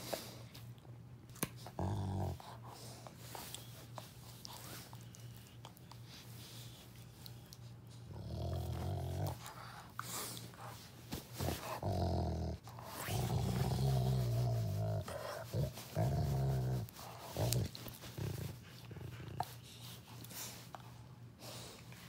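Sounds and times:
dog growling: 1.7s - 2.6s, 8.1s - 9.6s, 11.4s - 19.6s.

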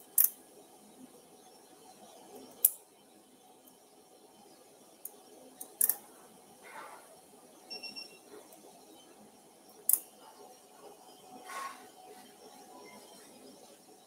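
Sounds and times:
short faint beep: 7.7s - 8.2s.

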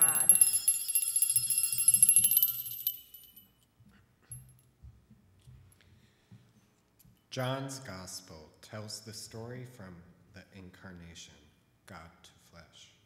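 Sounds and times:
small hand bell ringing: 0.0s - 3.6s.

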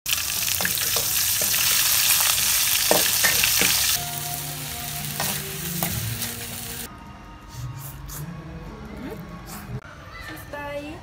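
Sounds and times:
noodles sizzling in wok: 0.1s - 6.9s.

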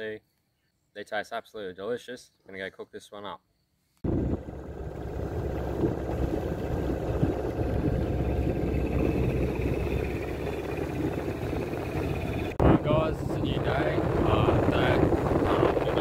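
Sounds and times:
outboard motor rumbling: 4.0s - 16.0s
faint high whine: 4.1s - 16.0s.

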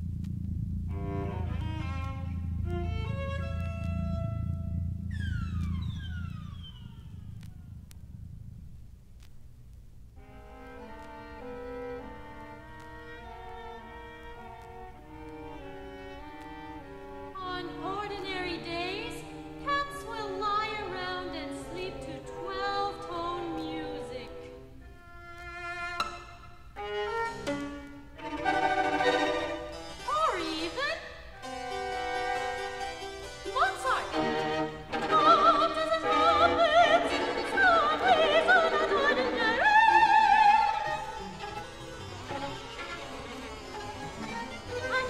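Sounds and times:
string ensemble playing: 0.8s - 8.6s, 10.2s - 45.0s
soprano singing with vibrato: 17.4s - 24.5s, 33.4s - 41.2s.

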